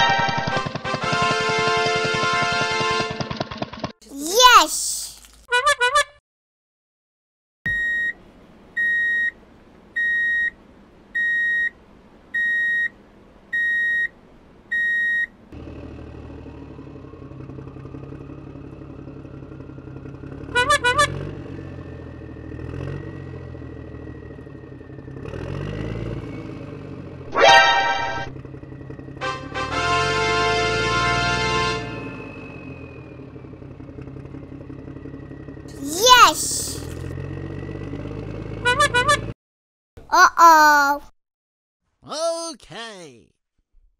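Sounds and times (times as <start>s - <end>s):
cartoon truck engine with whine: 0.0s - 4.0s, 7.7s - 39.4s
squeaky warble: 27.3s - 28.3s.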